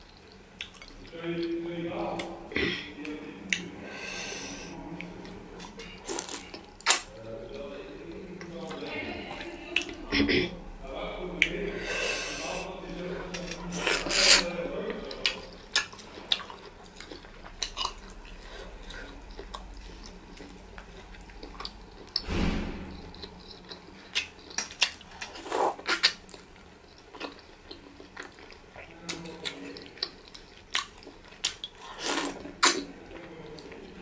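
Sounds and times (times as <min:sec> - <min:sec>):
biting and chewing: 0:13.2 - 0:32.9.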